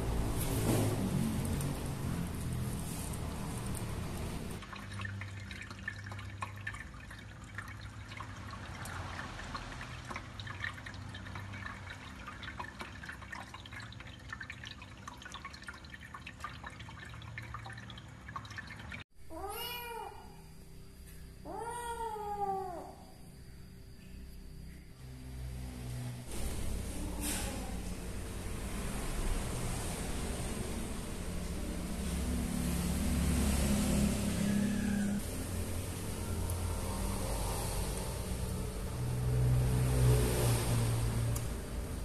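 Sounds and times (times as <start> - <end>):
pet water fountain drips: 1.3 - 19.0
cat meowing: 19.3 - 20.4, 21.4 - 23.0.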